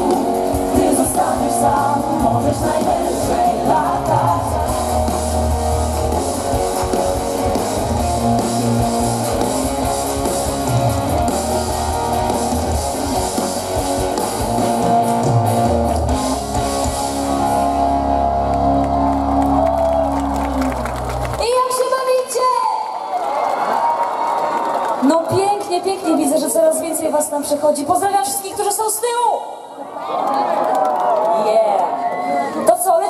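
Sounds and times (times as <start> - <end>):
electric guitar: 0.0 - 21.5
live band playing instrumental: 0.0 - 21.8.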